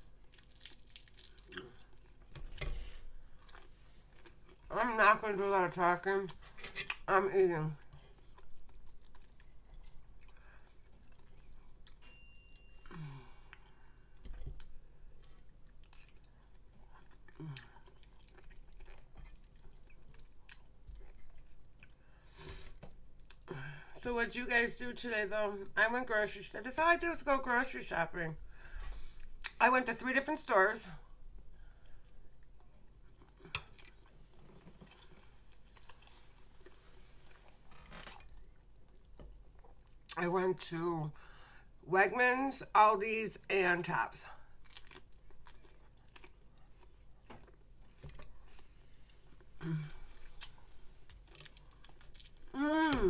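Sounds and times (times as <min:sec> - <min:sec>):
woman chewing food: 0:00.0 - 0:04.7, 0:07.8 - 0:12.0, 0:12.8 - 0:23.6, 0:31.3 - 0:40.2, 0:44.4 - 0:53.0.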